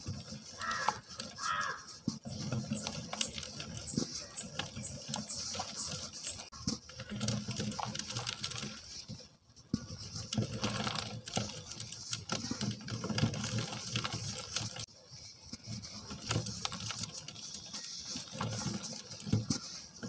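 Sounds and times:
grit pattering on plastic strainer: 0.0s - 9.2s, 9.8s - 14.9s.

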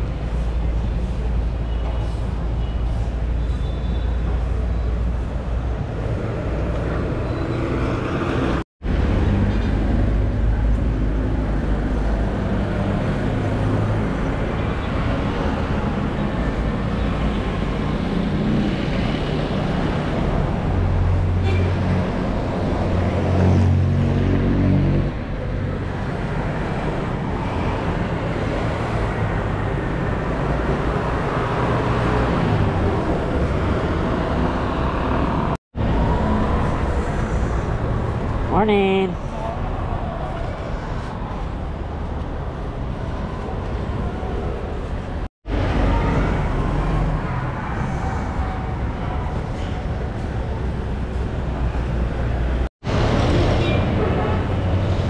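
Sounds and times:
motor vehicle engines and tyres: 0.0s - 55.0s
vehicle engine passing close: 18.0s - 38.4s.

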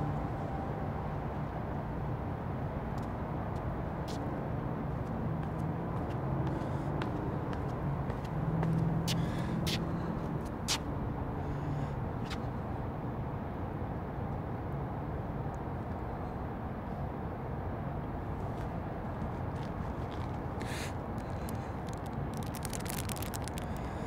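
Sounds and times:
low rumbling outdoor ambience: 0.0s - 24.0s.

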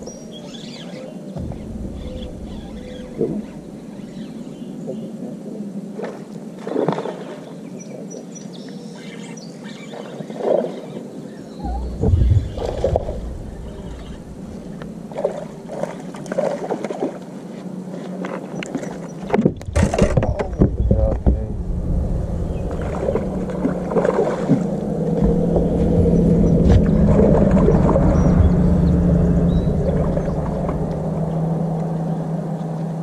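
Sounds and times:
steady motor hum: 0.0s - 4.7s, 11.6s - 16.2s, 19.6s - 33.0s
knocks and clatter on boat deck: 19.2s - 21.5s.

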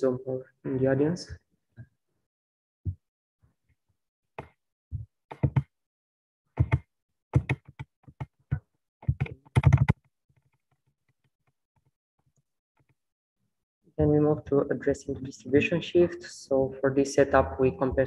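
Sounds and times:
computer keyboard key taps: 5.3s - 5.7s, 7.4s - 8.3s, 9.0s - 10.0s.

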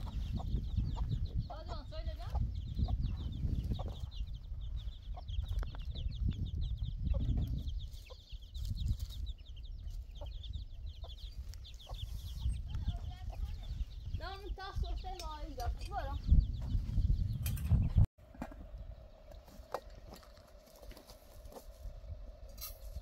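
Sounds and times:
chickens clucking: 0.0s - 15.5s.

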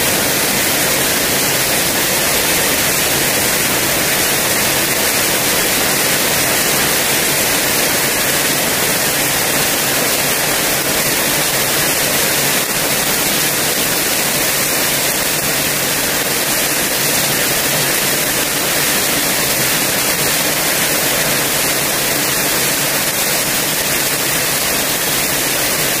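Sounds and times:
very heavy rain pouring: 0.0s - 26.0s.

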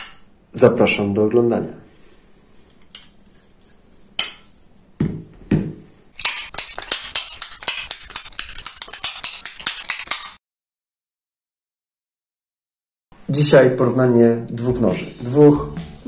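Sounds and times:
fast percussive clicks: 6.2s - 10.4s.

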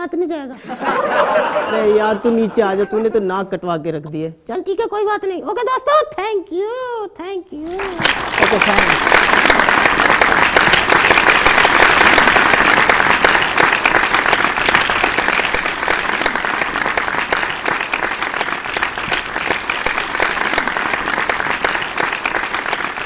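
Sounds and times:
audience applauding: 7.6s - 23.0s.

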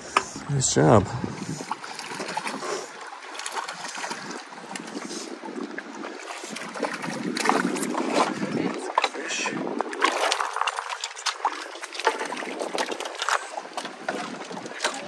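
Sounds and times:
waves lapping against boat hull: 0.0s - 15.0s
fish splashing: 1.4s - 15.0s.

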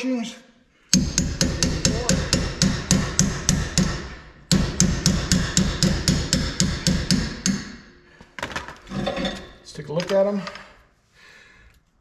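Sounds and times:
hammer striking metal suspension: 0.9s - 8.0s.

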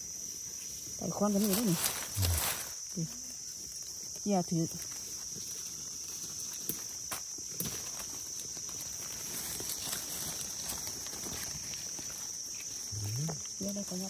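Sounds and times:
high-pitched insect drone: 0.0s - 14.0s
rustles of dry leaf litter: 0.0s - 14.0s.

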